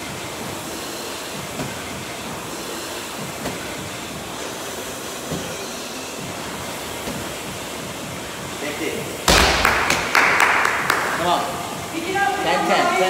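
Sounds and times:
medicine ball thuds: 9.2s - 10.1s.

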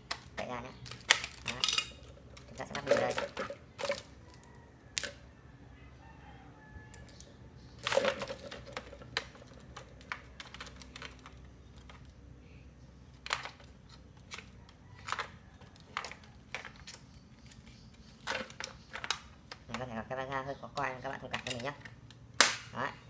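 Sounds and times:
plastic toy parts clicking: 0.0s - 5.2s, 6.9s - 12.1s.

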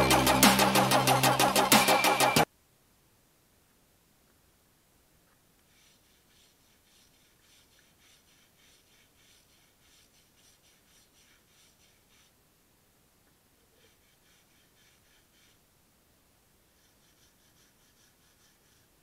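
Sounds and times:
wire brush scratching metal: 5.7s - 12.3s.

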